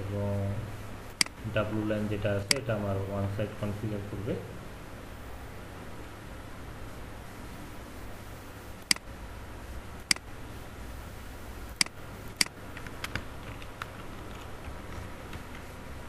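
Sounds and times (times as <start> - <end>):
low background hiss: 0.0 - 16.0
computer mouse clicking: 11.8 - 15.7.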